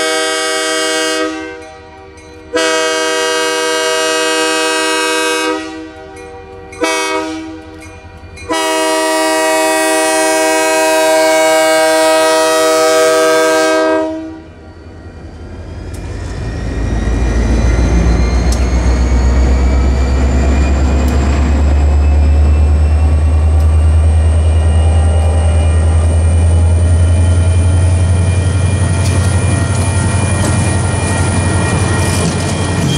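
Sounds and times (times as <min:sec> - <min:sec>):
locomotive air horn blasts: 0:00.0 - 0:01.7, 0:02.5 - 0:07.8, 0:08.5 - 0:14.6
wheels clicking over rail joints: 0:28.7 - 0:32.9.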